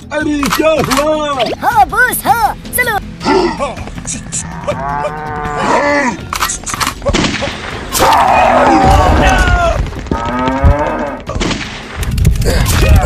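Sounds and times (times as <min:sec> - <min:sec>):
buffalo bellowing: 0:04.3 - 0:06.3
gunshot cracks: 0:11.3 - 0:12.0.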